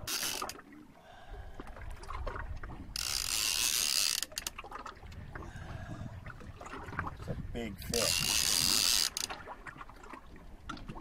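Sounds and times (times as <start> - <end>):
fishing reel drag ratcheting: 0.0 - 0.6, 2.9 - 4.6, 7.9 - 9.4.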